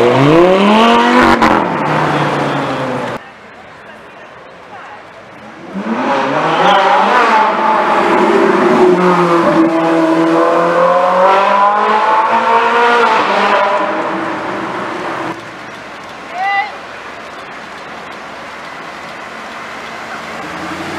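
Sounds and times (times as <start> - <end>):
sports car engine revving: 0.0 - 3.2, 5.6 - 15.4.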